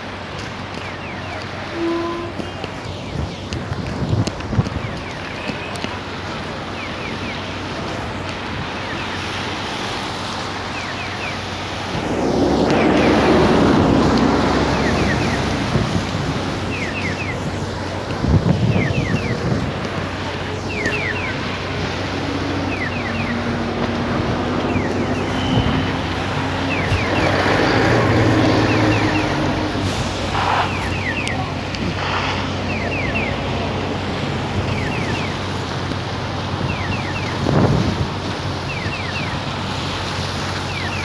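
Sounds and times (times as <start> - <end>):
engine hum of traffic: 0.0 - 41.0
tyres hissing on wet road: 0.0 - 41.0
wind on microphone: 1.6 - 6.4, 11.4 - 38.6.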